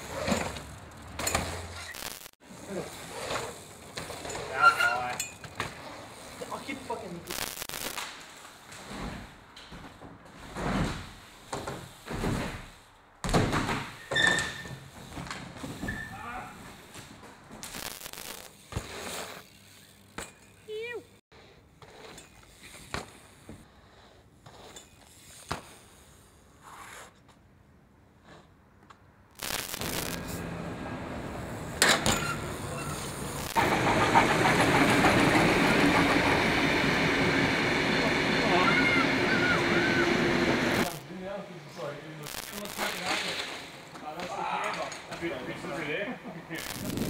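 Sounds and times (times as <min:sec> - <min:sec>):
bike tyres rumbling on wooden ramp: 0:00.0 - 0:01.9, 0:08.8 - 0:17.7
brief squeak: 0:14.0 - 0:14.7, 0:32.0 - 0:33.1
city street noise: 0:26.2 - 0:47.0.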